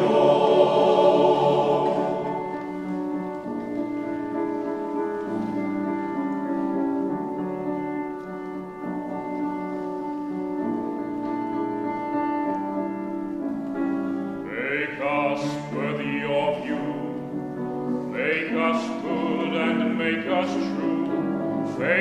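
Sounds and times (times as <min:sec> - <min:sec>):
male choir singing: 0:00.0 - 0:03.0, 0:14.5 - 0:17.2, 0:18.0 - 0:22.0
piano accompaniment: 0:00.0 - 0:22.0.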